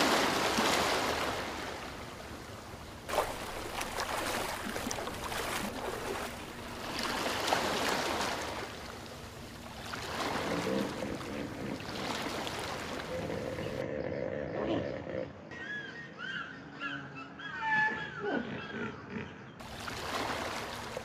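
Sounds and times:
water rushing and splashing: 0:00.0 - 0:13.8, 0:19.6 - 0:21.0.

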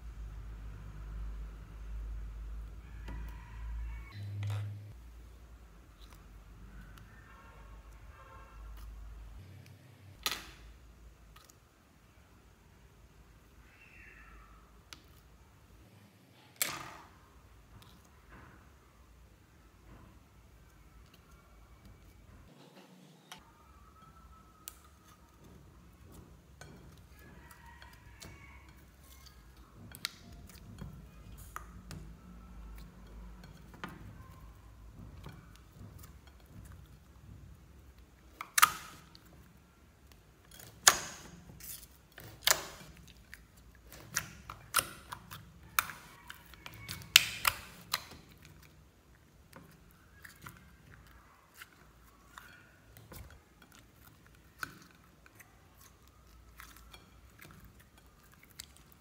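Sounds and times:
slime squishing: 0:02.4 - 0:12.0, 0:23.8 - 0:59.0.

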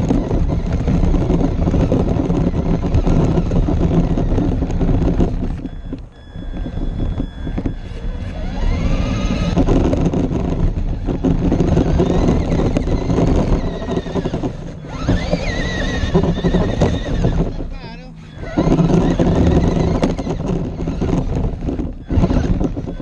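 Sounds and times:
electric motor whine: 0:00.0 - 0:23.0
tyres crunching on gravel: 0:00.0 - 0:23.0
wind on microphone: 0:00.0 - 0:23.0.

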